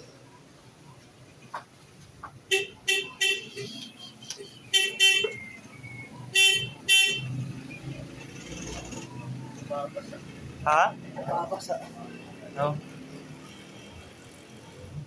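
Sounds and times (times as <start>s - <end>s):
vehicle horn beeping: 2.5s - 5.6s, 6.3s - 7.4s.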